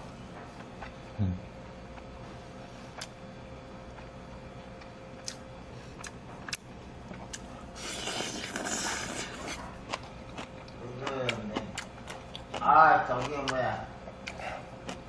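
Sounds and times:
faint steady hum: 0:00.0 - 0:15.0
chewing and chopstick clicks: 0:03.9 - 0:05.4
loud hissy slurp: 0:07.8 - 0:09.5.

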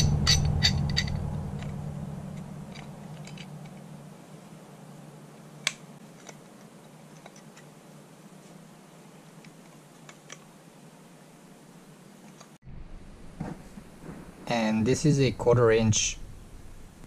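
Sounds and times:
low hum: 0:00.0 - 0:06.0, 0:12.6 - 0:17.0.

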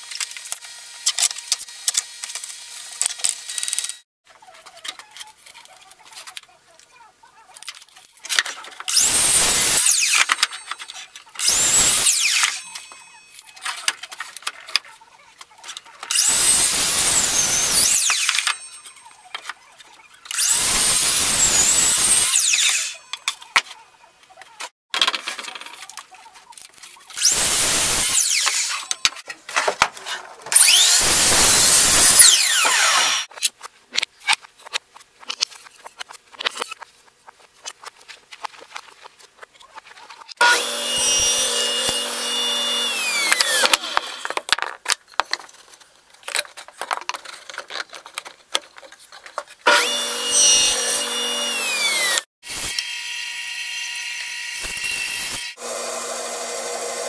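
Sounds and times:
miter saw cutting boards: 0:08.9 - 0:13.3, 0:16.1 - 0:19.2, 0:20.3 - 0:23.2, 0:27.2 - 0:33.3, 0:40.3 - 0:44.5, 0:49.6 - 0:57.0.

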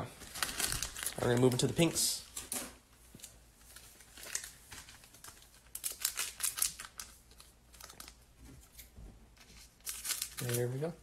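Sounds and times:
foil wrapper crinkling and tearing: 0:00.2 - 0:01.9, 0:03.7 - 0:08.2, 0:09.7 - 0:11.0.

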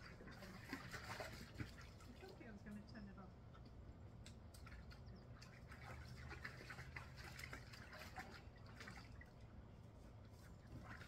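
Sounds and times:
water splashing in paddling pool: 0:00.0 - 0:02.8, 0:04.5 - 0:09.6, 0:10.4 - 0:11.0.

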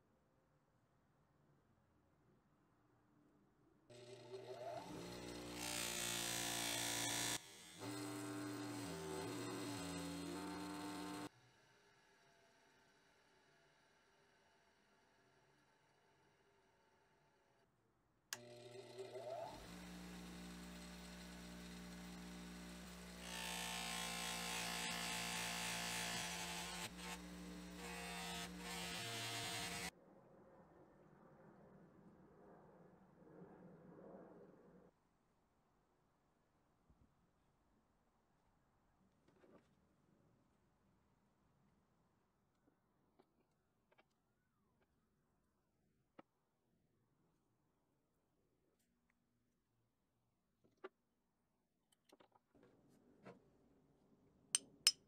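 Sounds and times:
bench grinder motor hum: 0:03.9 - 0:11.3, 0:18.4 - 0:29.9.

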